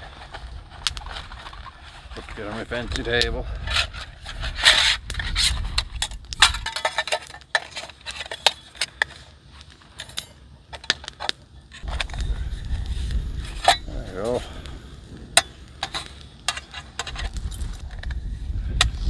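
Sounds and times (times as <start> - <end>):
camp utensils clinking: 0.0 - 12.3, 13.4 - 18.1
wind rumble on microphone: 0.4 - 6.7, 11.8 - 15.8, 17.0 - 19.0.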